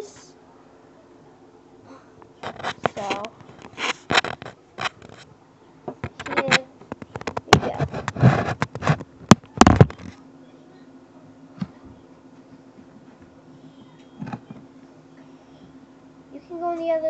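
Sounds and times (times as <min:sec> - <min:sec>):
faint low hum: 0:00.0 - 0:17.0
phone handling noise: 0:02.4 - 0:05.2.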